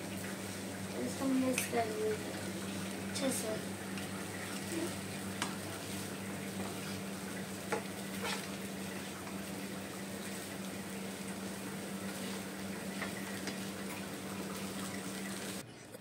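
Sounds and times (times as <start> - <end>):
frying hiss: 0.0 - 15.6
spatula stirring in frying pan: 4.4 - 15.5.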